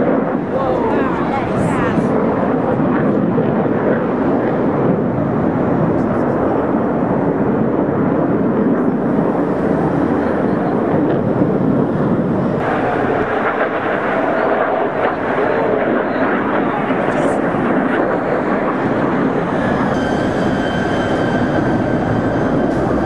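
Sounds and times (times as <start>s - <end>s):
jets flying past: 0.0s - 23.0s.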